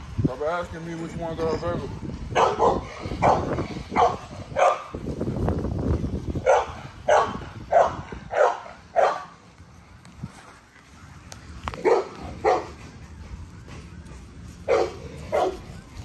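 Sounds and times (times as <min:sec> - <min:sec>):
puppies barking: 0:02.3 - 0:05.0, 0:06.4 - 0:09.4, 0:11.8 - 0:12.8, 0:14.6 - 0:15.7.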